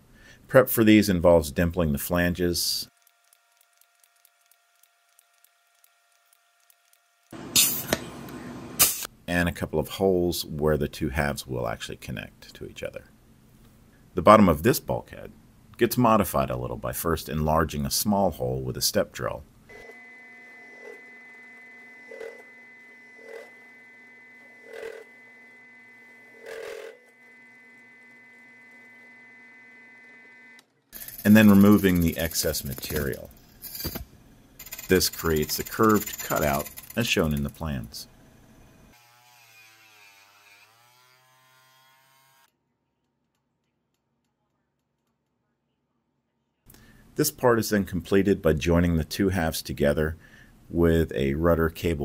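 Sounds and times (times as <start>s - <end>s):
drill press motor humming: 19.7s - 31.3s
rotary tool grinding metal: 19.7s - 34.0s, 34.6s - 37.6s, 38.9s - 42.5s.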